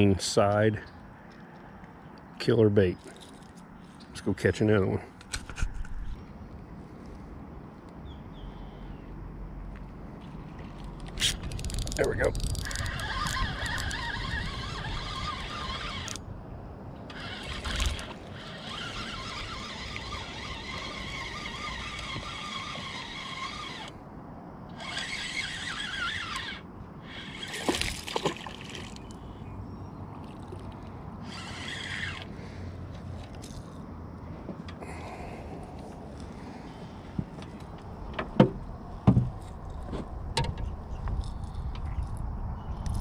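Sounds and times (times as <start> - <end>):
spinning reel cranking: 11.2 - 16.2, 17.1 - 24.0, 24.7 - 27.7, 31.2 - 32.3
sharp clicks or splashes: 27.4 - 29.2.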